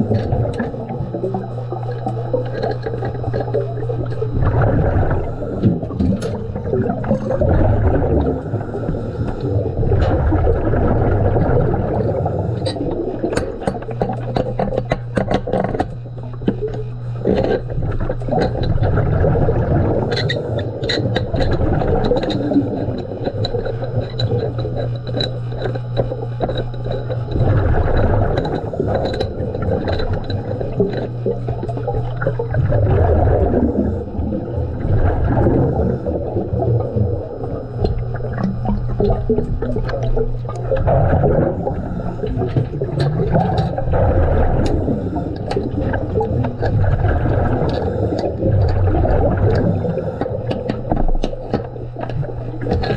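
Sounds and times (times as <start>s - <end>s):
air bubbling underwater: 0.0s - 15.2s, 17.0s - 25.0s, 25.8s - 52.9s
steady low hum: 0.0s - 52.9s
small knocks and clicks: 12.6s - 18.8s, 20.1s - 32.6s, 49.5s - 52.9s.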